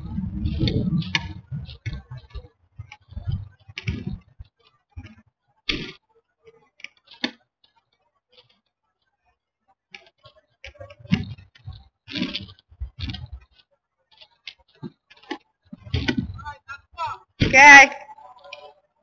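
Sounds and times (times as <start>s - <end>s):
kite fabric clicks and rustles: 0.0s - 19.0s.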